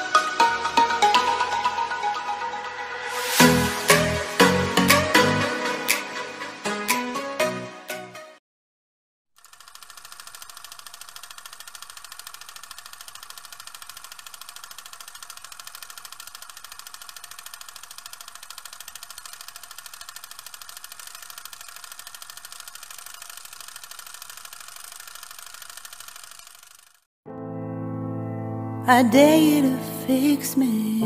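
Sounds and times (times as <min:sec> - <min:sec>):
small motor running: 0:09.4 - 0:27.1.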